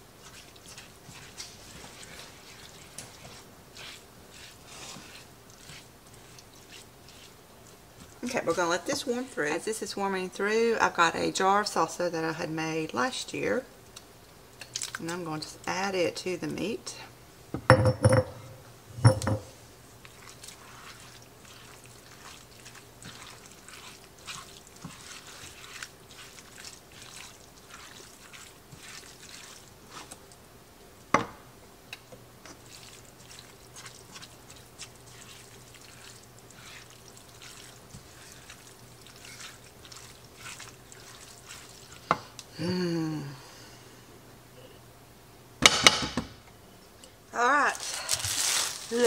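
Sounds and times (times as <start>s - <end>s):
spatula stirring in pan: 0.0s - 9.2s, 19.9s - 30.4s, 32.4s - 42.4s
knocking on glass jar: 17.6s - 18.4s, 19.0s - 19.5s.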